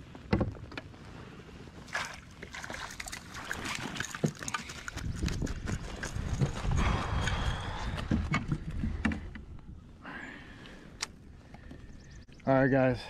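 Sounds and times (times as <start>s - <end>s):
water splashing and dripping: 1.8s - 6.2s
wind rumble on microphone: 4.7s - 10.0s.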